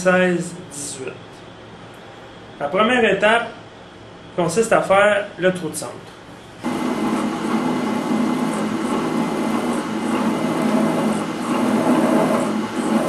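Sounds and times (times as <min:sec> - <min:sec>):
drill press drilling metal: 0:06.6 - 0:13.0.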